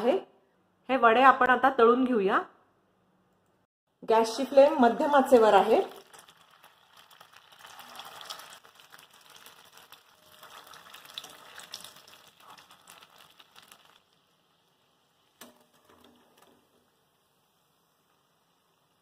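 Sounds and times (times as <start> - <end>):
oil sizzling while deep-frying: 4.1 - 19.0.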